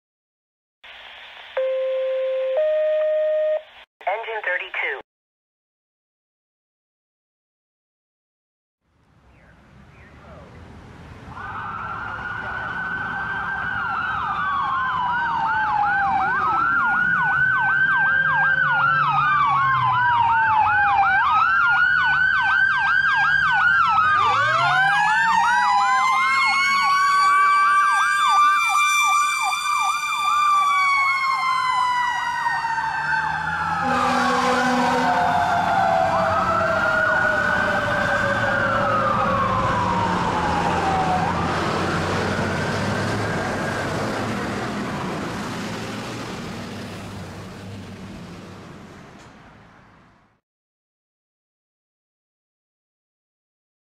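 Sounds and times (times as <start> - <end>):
electronic siren yelp and wail: 1.6 - 3.6, 11.3 - 43.8
air horn blast: 33.8 - 35.3.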